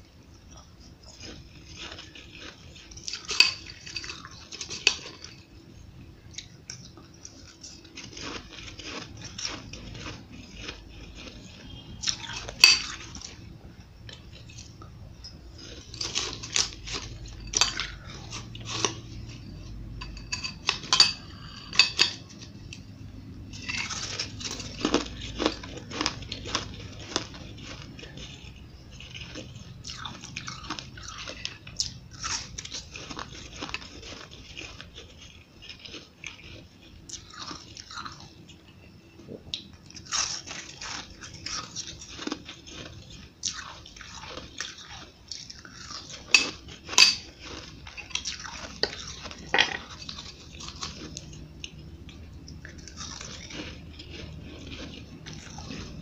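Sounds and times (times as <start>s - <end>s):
crunching ice: 7.9s - 13.4s, 23.6s - 28.4s, 29.0s - 38.2s.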